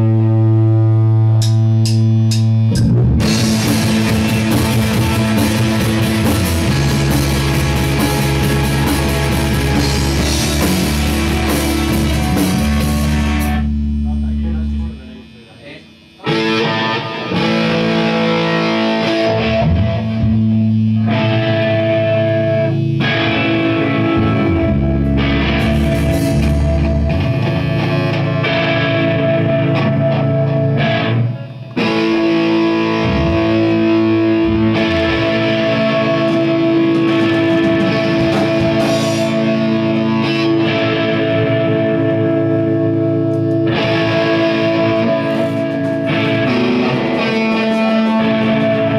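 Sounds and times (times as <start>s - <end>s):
rock band playing: 0.0s - 48.9s.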